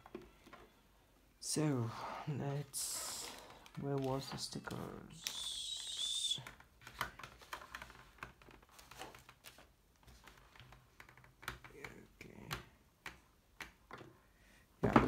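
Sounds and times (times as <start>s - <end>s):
helmet handling clicks and rustles: 6.4s - 11.7s.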